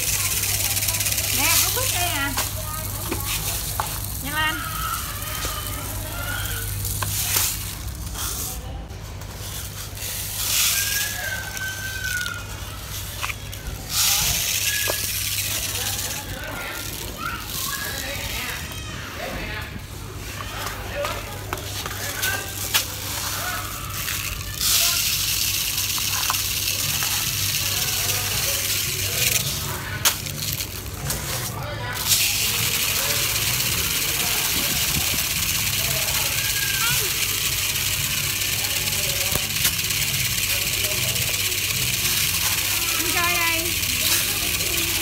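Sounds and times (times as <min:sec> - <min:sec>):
sand pouring into plastic toys: 0:00.0 - 0:08.7, 0:09.4 - 0:18.8, 0:21.7 - 0:45.0
sand trickling through toy wheel: 0:00.0 - 0:08.7, 0:09.3 - 0:18.8, 0:21.6 - 0:45.0.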